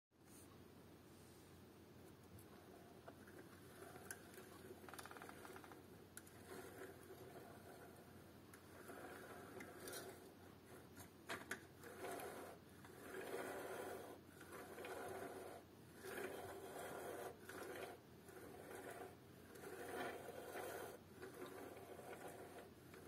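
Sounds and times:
plastic scraping on wooden table: 3.0 - 23.0.

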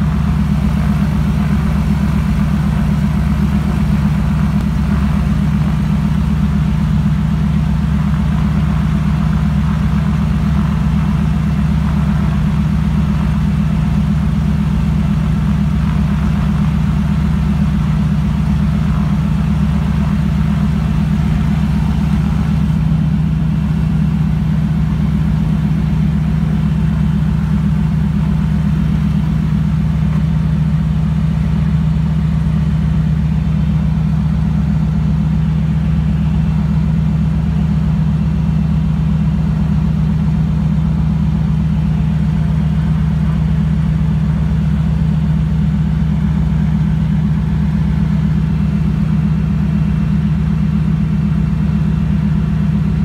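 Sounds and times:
plane engine and propeller: 0.0 - 53.0.

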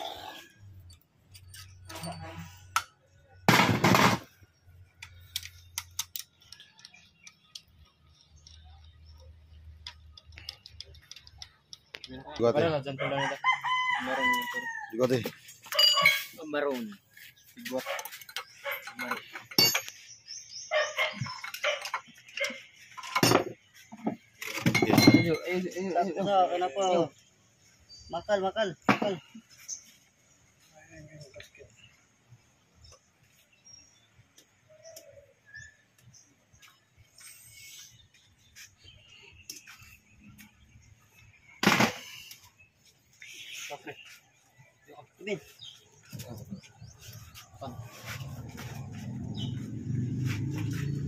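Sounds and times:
metal tool clicks and knocks: 18.2 - 20.0.

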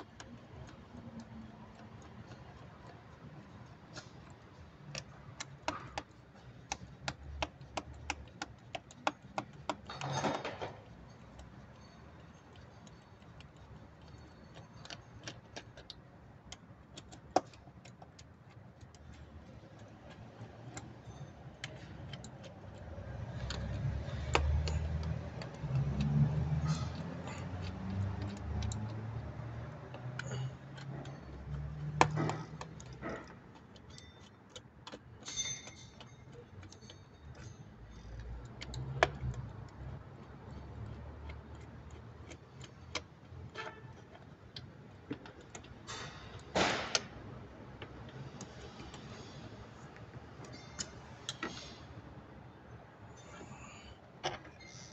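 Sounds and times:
hand tool tapping metal: 0.0 - 47.1.

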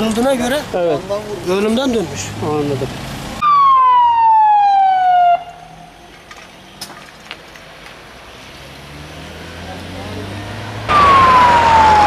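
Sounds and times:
quiet street background: 0.0 - 12.0
ambulance siren wailing: 3.4 - 5.9, 10.9 - 12.0.

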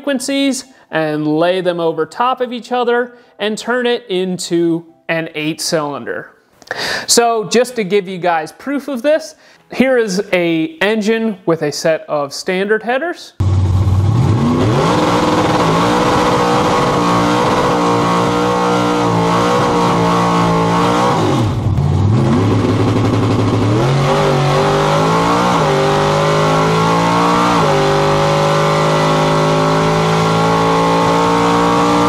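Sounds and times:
engine revving at full throttle: 13.4 - 32.0.

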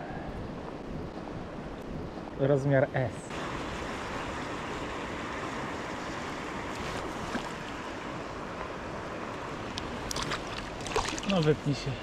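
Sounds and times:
stream water rushing: 3.3 - 12.0
splashy clicks: 10.0 - 11.5.

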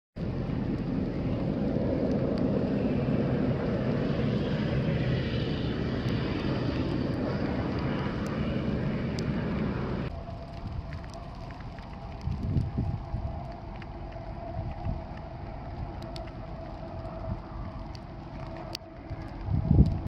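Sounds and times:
plow truck engine: 0.2 - 10.1
plow blade spraying slush: 0.2 - 12.2.

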